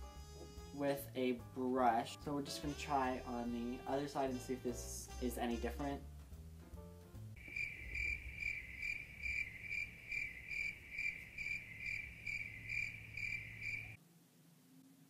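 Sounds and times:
high cricket chirp: 7.4 - 14.0.

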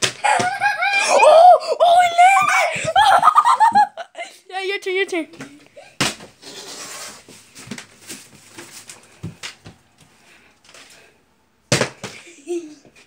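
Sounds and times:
plastic bottle thumping on floor: 11.7 - 12.2.

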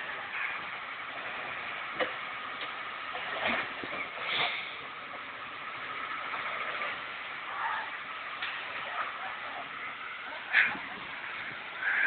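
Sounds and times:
truck engine running: 0.0 - 12.0.

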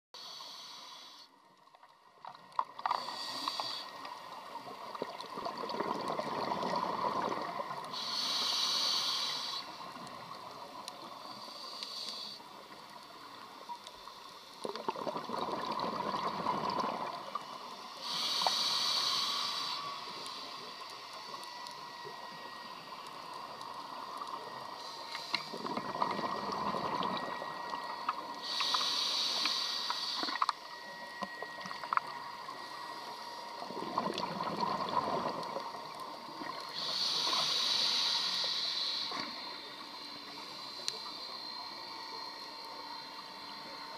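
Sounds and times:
hissing regulator inhale: 0.2 - 1.4, 2.9 - 5.2, 7.8 - 10.3, 11.0 - 14.8, 16.2 - 30.7, 36.2 - 43.9
bubbling exhale underwater: 5.0 - 7.6, 14.7 - 17.2, 33.7 - 35.6.

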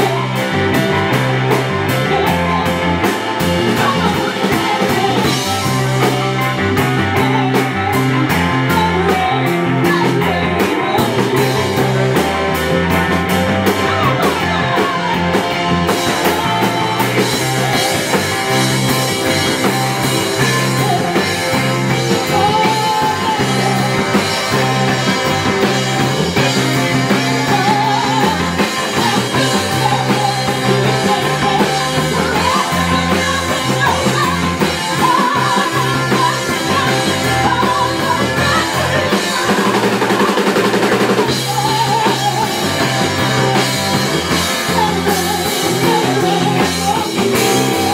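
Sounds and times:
bass guitar: 0.0 - 47.9
drums: 0.0 - 47.9
keyboard: 0.0 - 47.9
person singing: 0.0 - 47.9.

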